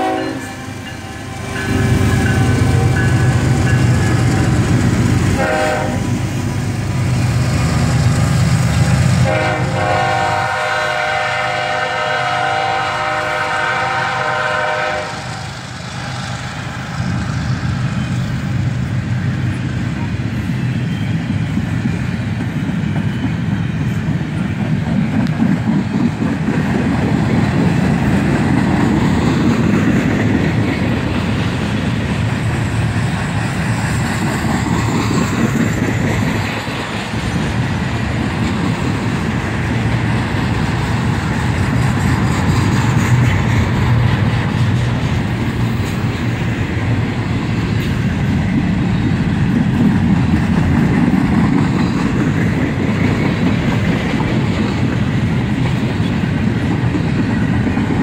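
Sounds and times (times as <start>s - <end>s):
locomotive air horn: 0.0s - 4.6s, 5.4s - 6.2s, 9.2s - 15.6s
train wheels rumbling on rails: 0.0s - 58.0s.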